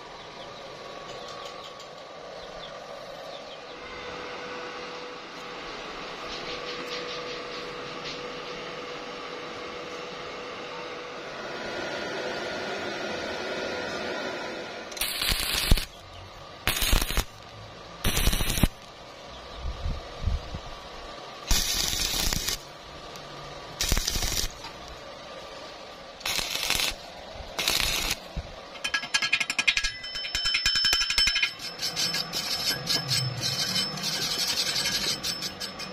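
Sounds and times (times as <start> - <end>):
steady hum: 0.0 - 35.9
welding arc crackling and hissing: 14.9 - 16.0, 16.6 - 19.1, 20.4 - 29.9.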